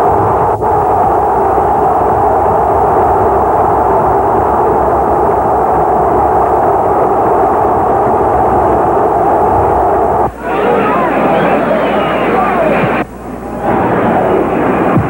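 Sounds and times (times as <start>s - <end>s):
stadium crowd cheering: 10.3s - 15.0s.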